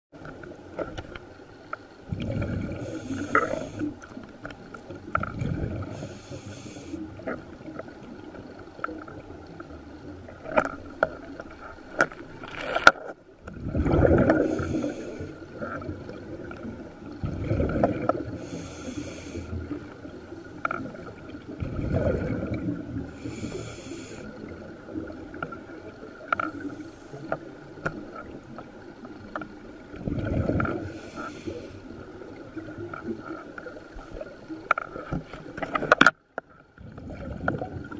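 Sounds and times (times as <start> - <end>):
exhaled bubbles rushing: 2.0 - 4.0, 4.9 - 6.1, 12.4 - 18.7, 20.8 - 23.5, 29.7 - 31.1, 36.8 - 37.9
regulator hiss: 2.8 - 4.0, 5.9 - 7.0, 14.4 - 15.4, 18.4 - 19.9, 23.1 - 24.4.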